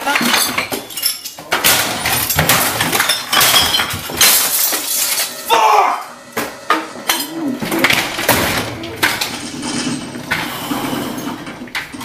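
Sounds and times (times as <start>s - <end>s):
glass and bottles breaking: 0.0s - 12.0s
objects crashing and clattering: 0.0s - 12.0s
man shouting: 5.4s - 6.2s.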